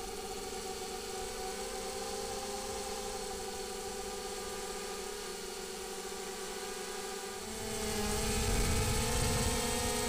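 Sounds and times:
drone propellers whirring: 7.3s - 10.0s.

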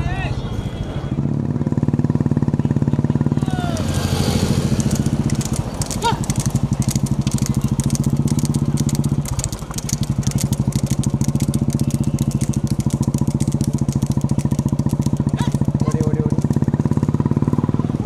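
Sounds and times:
motorcycle engine running: 0.7s - 18.0s
rapid clatter of clicks: 4.6s - 17.2s.

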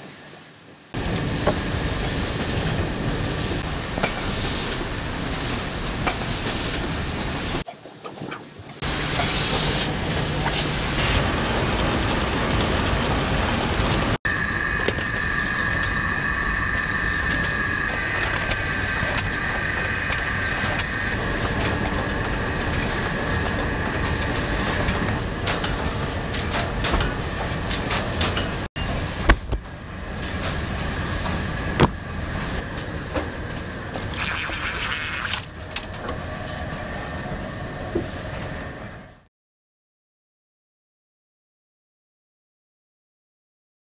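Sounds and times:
high machine whine: 14.3s - 28.0s.

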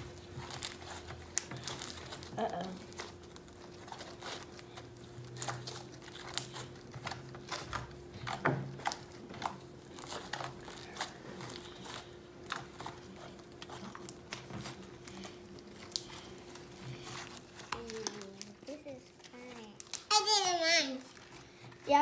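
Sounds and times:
slime crackling and popping: 0.0s - 22.0s.

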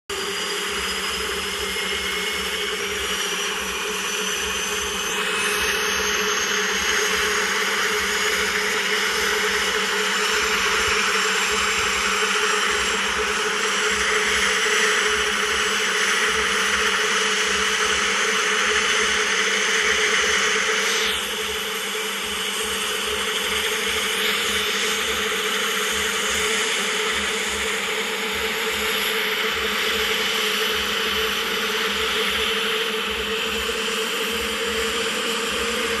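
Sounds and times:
helicopter engine whirring: 0.1s - 10.4s.

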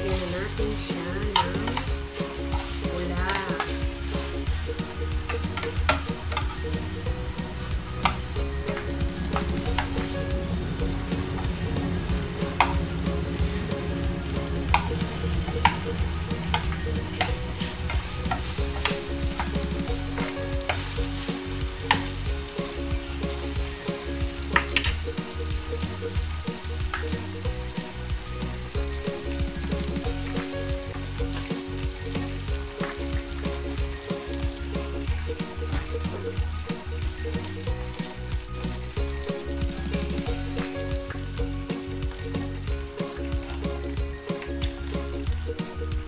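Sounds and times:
meatballs sizzling in a pan: 0.0s - 46.0s
metal spoon scraping a pan: 0.2s - 6.9s, 14.4s - 22.2s.

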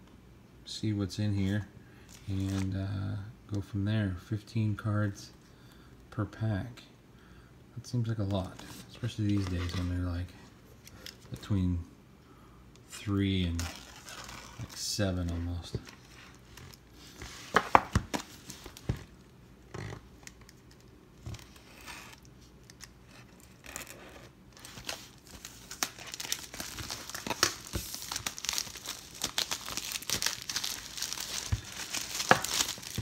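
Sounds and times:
plastic shrink wrap crinkling: 13.5s - 19.1s, 21.4s - 33.0s.

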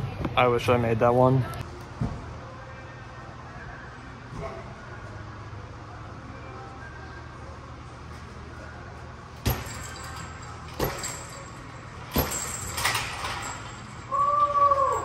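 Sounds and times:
metallic clinks of ring hardware: 9.5s - 14.1s.

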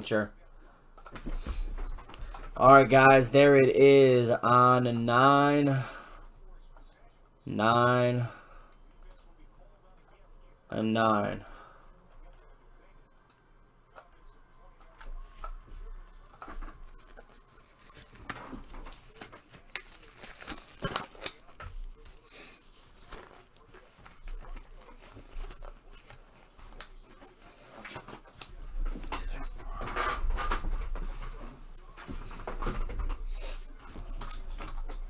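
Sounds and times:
packaging rustling and crinkling: 16.9s - 28.4s.

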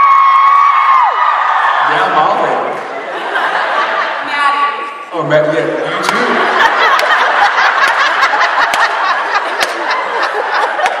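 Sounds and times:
people clapping: 0.0s - 1.6s, 6.0s - 11.0s
audience laughing loudly: 2.8s - 4.4s, 5.8s - 11.0s.

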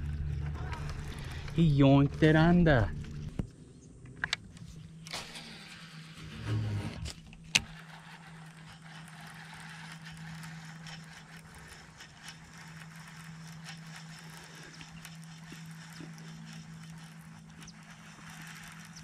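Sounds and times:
electric trolling motor humming: 0.0s - 19.0s
fishing reel ticking: 4.7s - 19.0s.

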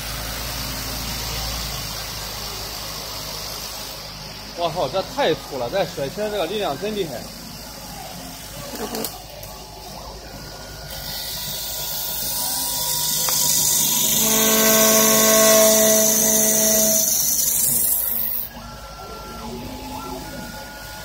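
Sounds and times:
hiss of shaving wood: 0.0s - 8.2s, 10.9s - 18.4s
lathe whine: 10.0s - 21.0s
wood lathe cutting wood: 10.9s - 18.5s.

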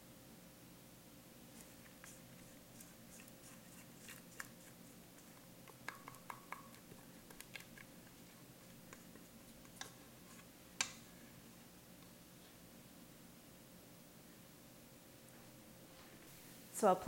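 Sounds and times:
spatula scraping mixing bowl: 1.6s - 10.5s
spatula knocking bowl: 5.3s - 7.9s.

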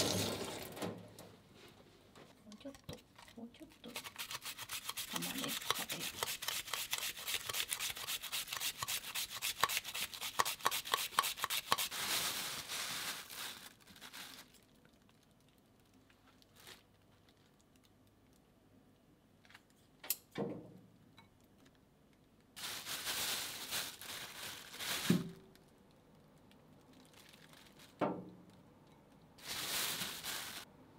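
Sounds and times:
onion slicing on slicer: 4.1s - 11.9s.

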